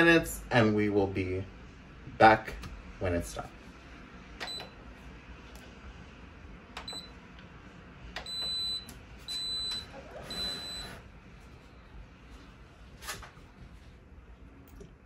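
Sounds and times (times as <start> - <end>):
control panel beeping: 4.4 - 4.8, 6.8 - 7.2.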